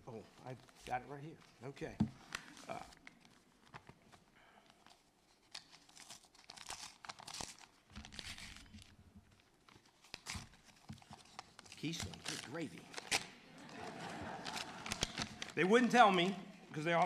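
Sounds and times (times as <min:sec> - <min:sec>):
paper crinkling and tearing: 0:04.8 - 0:13.4, 0:14.1 - 0:16.2.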